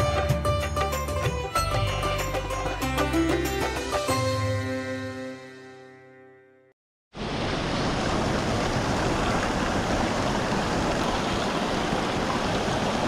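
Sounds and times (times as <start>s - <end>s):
background music: 0.0s - 6.7s
fast-flowing water rushing: 7.2s - 13.0s.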